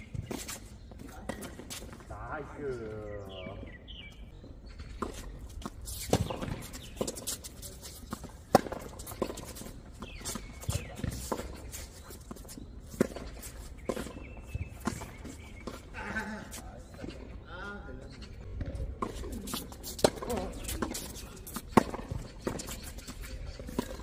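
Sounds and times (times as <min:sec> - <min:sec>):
shoes scuffing on court: 0:00.0 - 0:02.1, 0:02.8 - 0:17.3, 0:18.6 - 0:24.0
tennis balls struck by rackets: 0:04.9 - 0:17.3, 0:18.6 - 0:24.0
balls bouncing on hard court: 0:05.0 - 0:16.2, 0:18.6 - 0:24.0.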